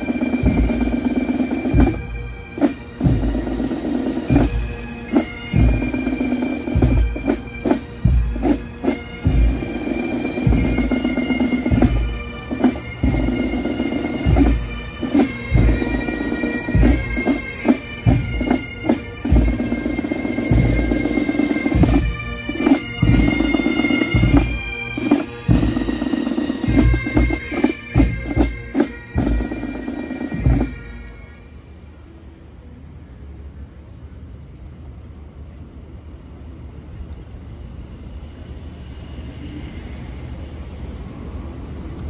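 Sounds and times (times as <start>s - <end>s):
drum beats: 0.0s - 31.0s
bagpipes playing slow tune: 0.0s - 32.0s.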